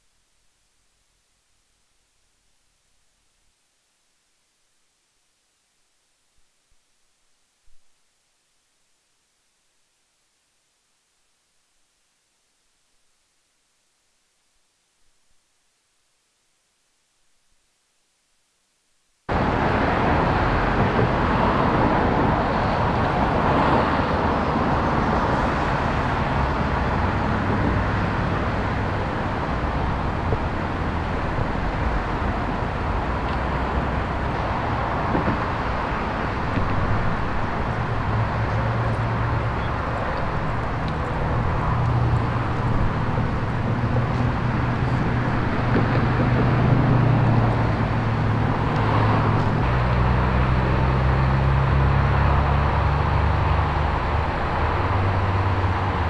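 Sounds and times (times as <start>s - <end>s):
freeway traffic rush: 19.3s - 56.0s
low engine hum: 19.3s - 56.0s.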